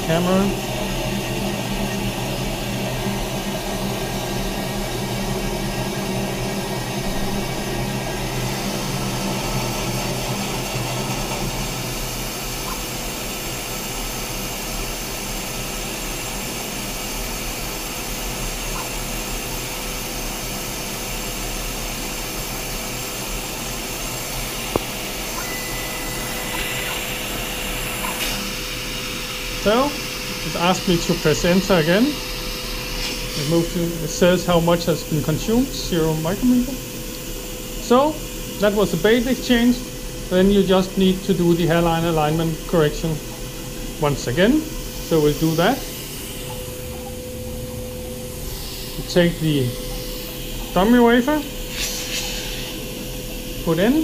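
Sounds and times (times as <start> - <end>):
saw machine whirring: 0.0 - 54.0
faint beep: 25.4 - 27.0.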